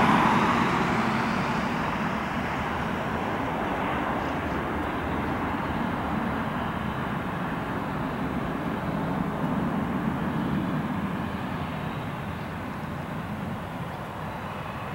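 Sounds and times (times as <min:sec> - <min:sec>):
jet engines at climb thrust: 0:00.0 - 0:14.9.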